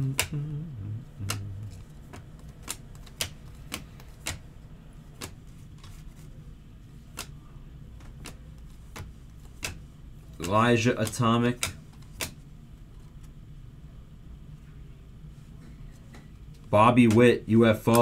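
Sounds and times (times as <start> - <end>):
low hum: 0.0 - 2.1
trading cards clicking: 1.2 - 4.5, 5.1 - 6.2, 7.0 - 7.4, 8.0 - 12.4, 16.1 - 18.0.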